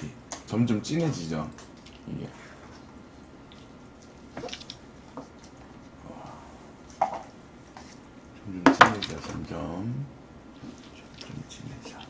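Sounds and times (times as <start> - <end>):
wet noodle sounds: 1.6 - 5.9.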